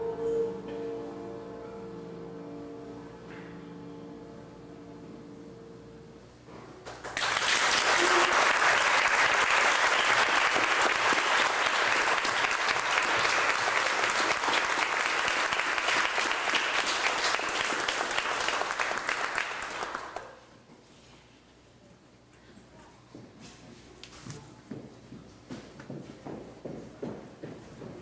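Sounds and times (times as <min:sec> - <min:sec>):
audience clapping: 0:06.8 - 0:20.4.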